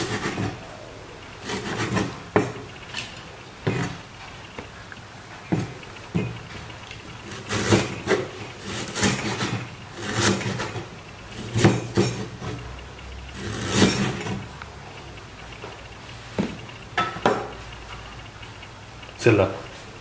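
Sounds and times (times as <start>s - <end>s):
cleaver chopping on wooden board: 11.5s - 12.2s.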